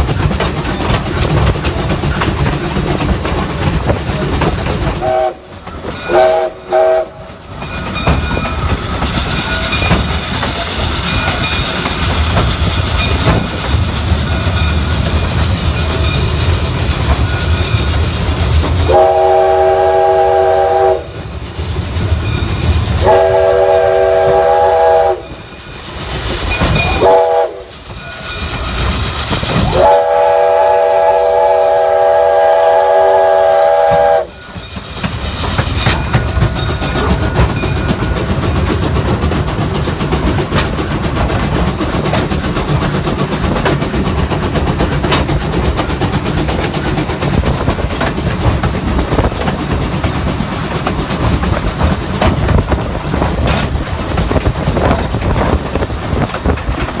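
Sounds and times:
train rolling over rails: 0:00.0 - 0:57.0
steam locomotive whistle: 0:03.3 - 0:07.4, 0:18.8 - 0:21.2, 0:23.0 - 0:25.5, 0:26.6 - 0:28.5, 0:29.5 - 0:34.6.

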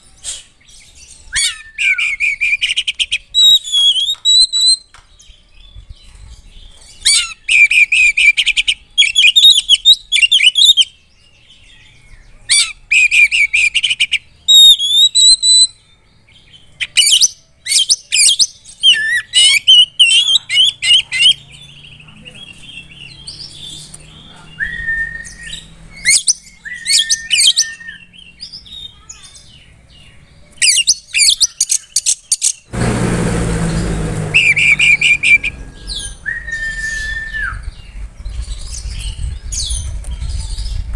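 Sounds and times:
bird singing: 0:00.0 - 0:32.7, 0:33.3 - 0:40.9
rushing noise: 0:32.7 - 0:40.9.

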